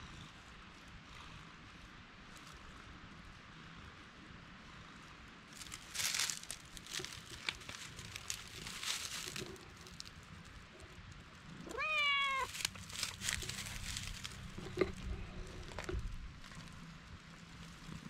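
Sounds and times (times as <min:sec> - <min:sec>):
rustling and scuffing: 0:05.6 - 0:10.1, 0:12.4 - 0:15.1
cat meowing: 0:11.6 - 0:12.6.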